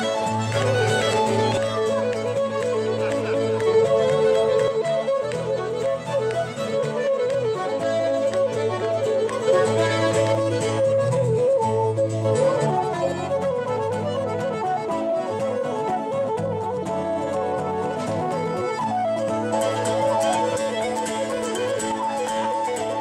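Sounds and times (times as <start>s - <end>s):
fiddle melody: 0.0s - 23.0s
wooden flute: 0.0s - 23.0s
accordion bass notes: 12.4s - 18.5s.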